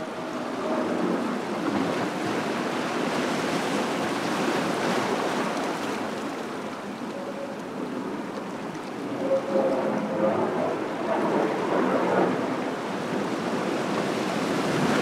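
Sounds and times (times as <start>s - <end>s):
waves washing over rocks: 0.0s - 9.2s, 12.2s - 15.0s.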